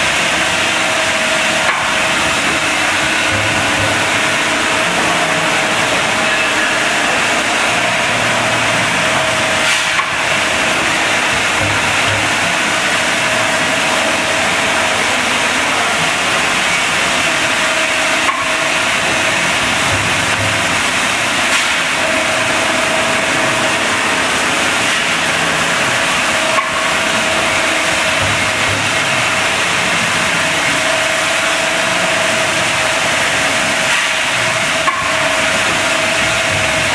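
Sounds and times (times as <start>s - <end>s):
packing machine hissing: 0.0s - 36.9s.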